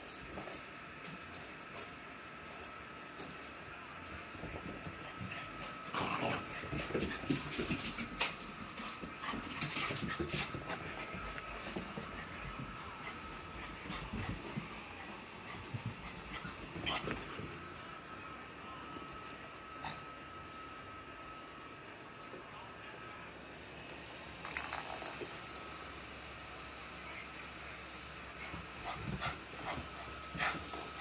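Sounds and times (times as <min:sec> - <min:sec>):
dog paws scrabbling: 0:00.0 - 0:17.7.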